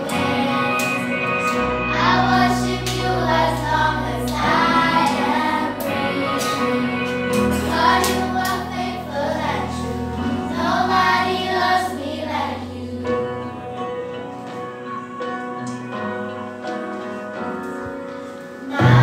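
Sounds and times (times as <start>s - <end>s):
children's choir singing: 0.0s - 14.1s, 18.6s - 19.0s
backing accompaniment low notes: 0.0s - 17.6s.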